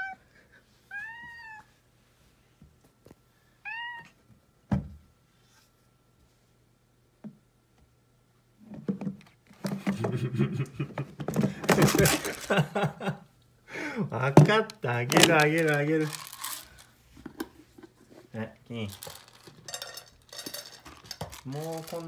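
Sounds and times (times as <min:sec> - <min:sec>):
kitten meowing: 0:00.9 - 0:01.7, 0:03.7 - 0:04.2
thump: 0:04.7 - 0:05.0
rustling and clattering in cupboard: 0:08.6 - 0:12.8, 0:14.3 - 0:22.0.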